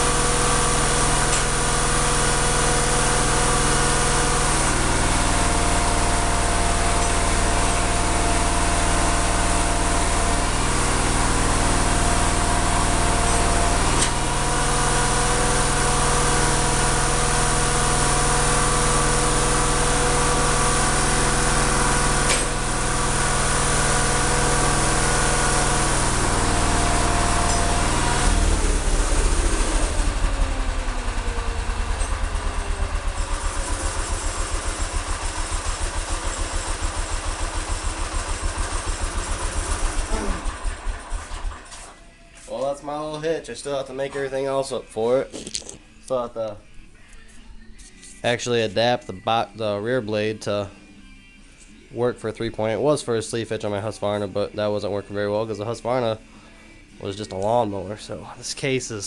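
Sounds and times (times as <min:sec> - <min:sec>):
tractor engine running: 0:00.0 - 0:42.0.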